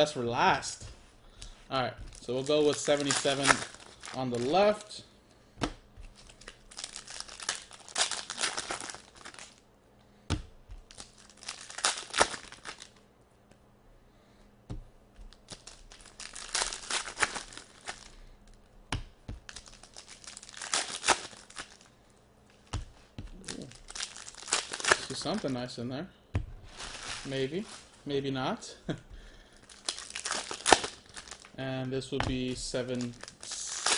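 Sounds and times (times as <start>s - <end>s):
foil wrappers crinkling and tearing: 1.4s - 5.0s, 6.0s - 9.6s, 10.9s - 13.0s, 15.3s - 18.2s, 19.4s - 21.9s, 23.3s - 25.8s, 26.7s - 28.0s, 29.3s - 33.9s.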